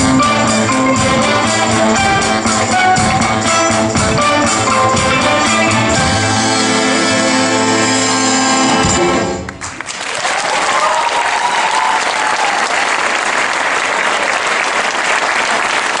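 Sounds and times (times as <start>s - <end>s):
orchestra chord: 0.0s - 9.6s
audience applause: 9.4s - 16.0s.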